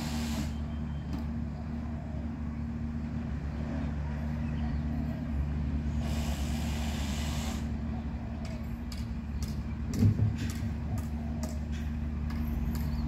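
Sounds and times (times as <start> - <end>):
air brake hiss: 0.0 - 0.7, 5.9 - 7.8
diesel truck engine running: 0.0 - 13.0.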